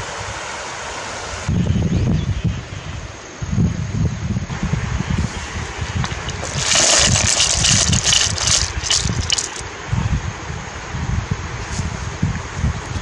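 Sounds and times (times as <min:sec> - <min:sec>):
shells clattering: 0:06.2 - 0:09.6
water gushing into a basket: 0:06.2 - 0:09.6.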